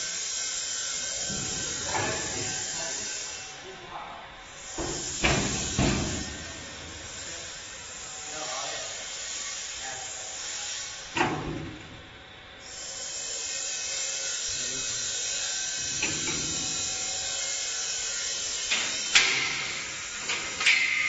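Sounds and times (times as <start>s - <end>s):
steel door clanging shut: 11.2s - 12.0s, 15.9s - 16.8s.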